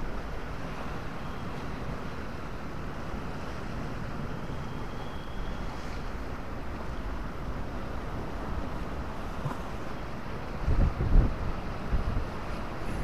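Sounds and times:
sea surf washing: 0:00.0 - 0:13.0
wind buffeting microphone: 0:10.6 - 0:13.0.

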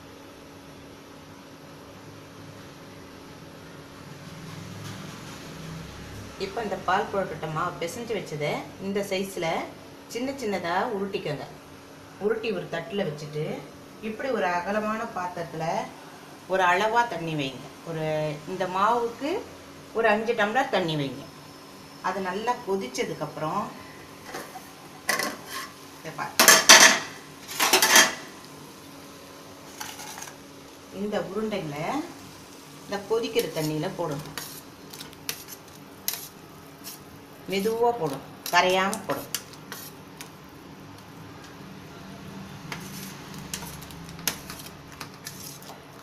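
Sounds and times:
water boiling in a pot: 0:15.8 - 0:46.0.

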